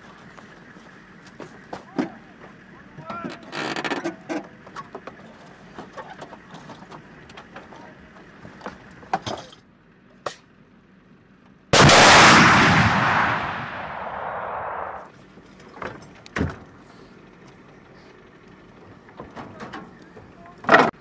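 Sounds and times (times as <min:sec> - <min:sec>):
missile launch blast and roar: 0:11.8 - 0:15.0.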